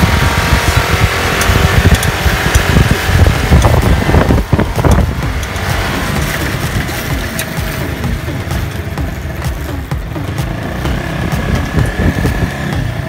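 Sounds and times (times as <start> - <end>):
motorcycle engines rumbling: 0.0 - 13.0.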